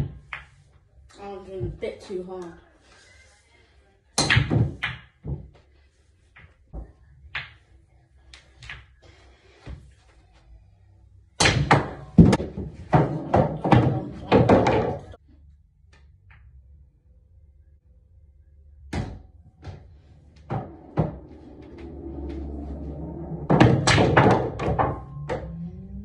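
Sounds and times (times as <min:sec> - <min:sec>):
pool balls clattering: 0:11.5 - 0:15.2, 0:20.4 - 0:26.0.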